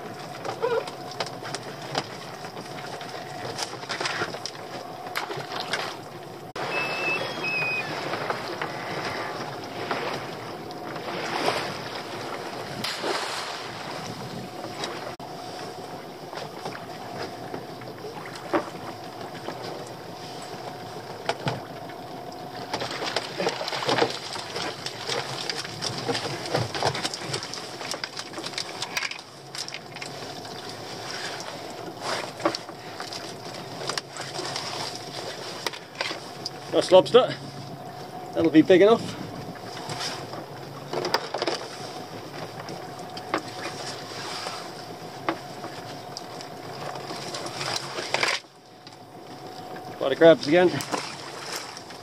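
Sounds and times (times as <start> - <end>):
sea noise: 0.0 - 52.0
wind: 0.0 - 52.0.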